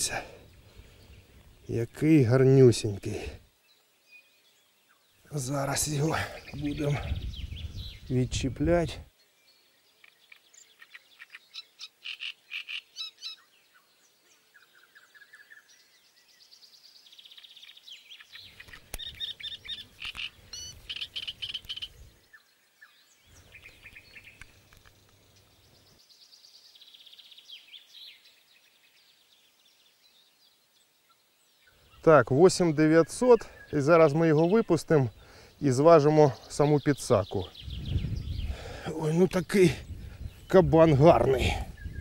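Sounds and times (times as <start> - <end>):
rattling high animal chirps: 18.4 - 22.0.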